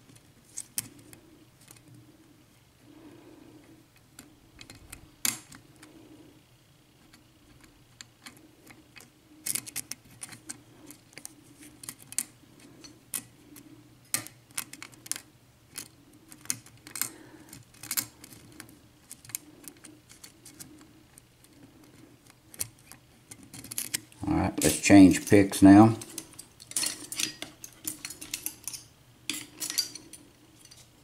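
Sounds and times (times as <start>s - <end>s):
lock pick clicking and scraping: 7.0s - 13.3s, 14.1s - 24.7s, 26.0s - 30.9s.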